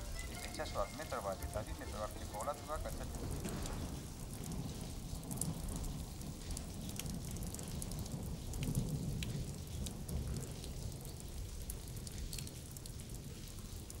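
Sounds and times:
raindrops ticking: 0.0s - 14.0s
steady rain: 0.0s - 14.0s.

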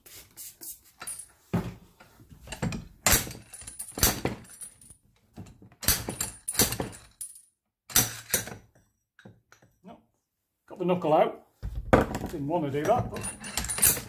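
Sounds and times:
metallic clanks and scrapes: 12.8s - 14.0s.

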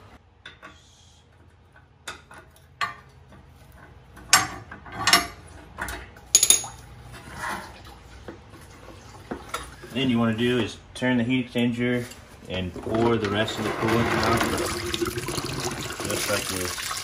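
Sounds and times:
metal clanks and rattles: 1.7s - 7.7s.

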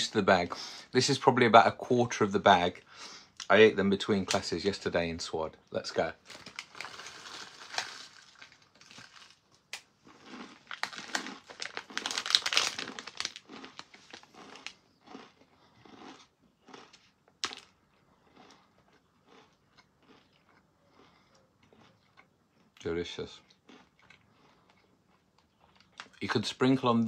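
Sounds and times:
crunching snacks: 6.1s - 27.0s
snack bag crinkling: 6.2s - 22.3s, 23.5s - 26.4s.

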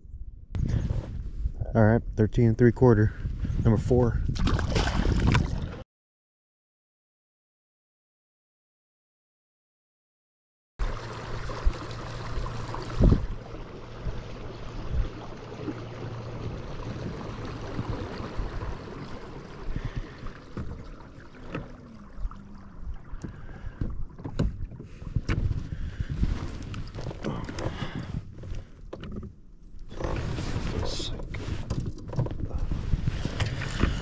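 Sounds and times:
water along kayak hull: 0.6s - 1.2s, 4.3s - 5.8s, 10.8s - 34.0s
low hum: 10.8s - 28.8s.

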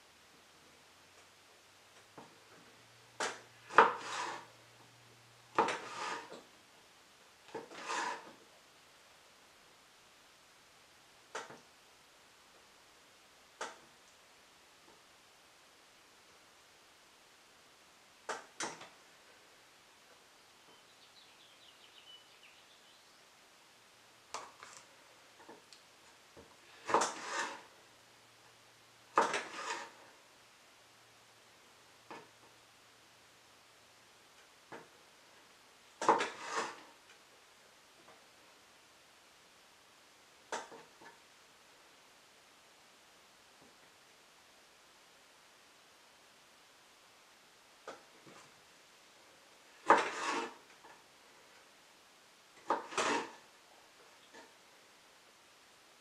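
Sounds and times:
knife slicing on wooden board: 3.3s - 4.5s.

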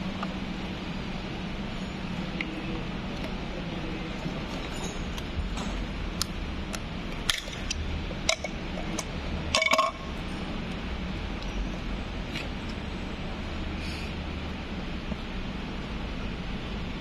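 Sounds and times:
steady low hum: 0.0s - 17.0s
light metallic clinks: 4.6s - 5.8s.

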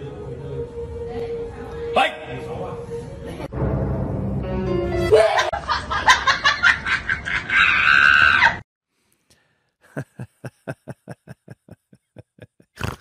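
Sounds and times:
person screaming and laughing: 5.1s - 5.6s, 7.3s - 8.6s.

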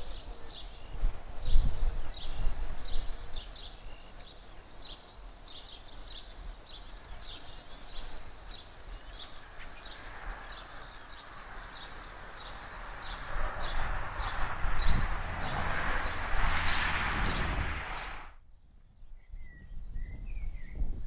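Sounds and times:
small bird chirping: 0.0s - 15.0s.

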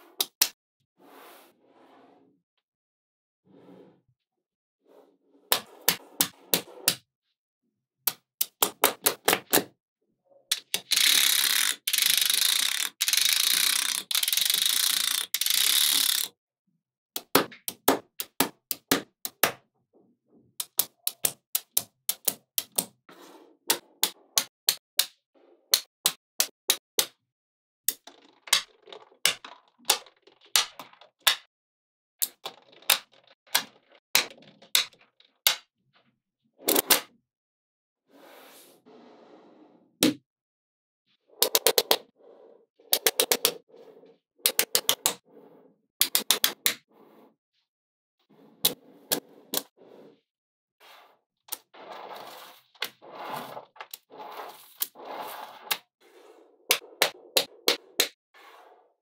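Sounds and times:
magnetic balls clicking: 10.5s - 16.3s.

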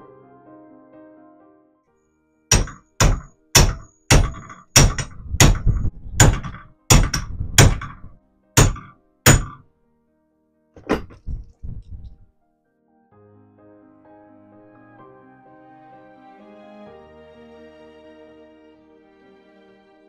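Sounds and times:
piano background music: 0.0s - 20.0s
hammer blows with metallic ring: 2.5s - 9.6s.

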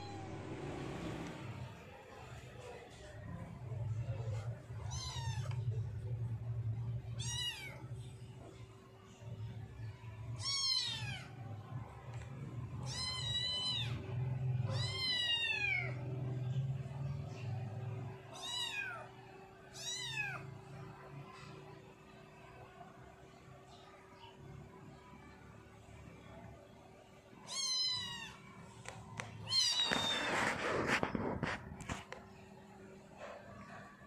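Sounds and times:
kitten meowing: 27.5s - 28.4s, 29.4s - 30.5s.

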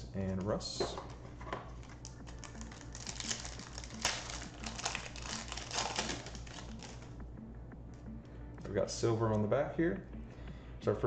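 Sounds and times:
foil wrapper tearing and crinkling: 1.8s - 7.0s.

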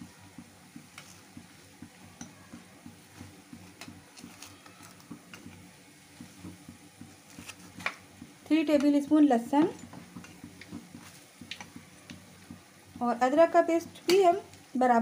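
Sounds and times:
low steady hum: 0.0s - 15.0s.

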